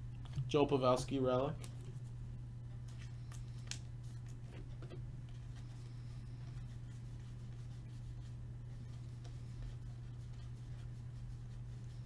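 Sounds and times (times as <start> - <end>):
cards being flipped by hand: 2.8 - 5.8.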